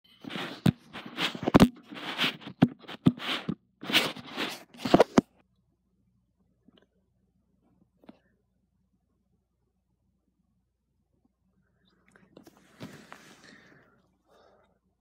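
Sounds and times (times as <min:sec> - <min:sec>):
phone rustling against fabric: 0:00.1 - 0:05.4, 0:12.2 - 0:13.8.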